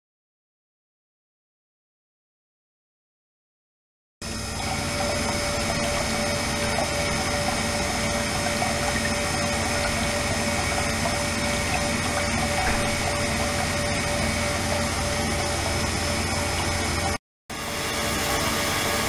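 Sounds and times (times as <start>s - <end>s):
machine hum with whine: 4.2s - 19.0s
water jetting into tank: 4.2s - 19.0s.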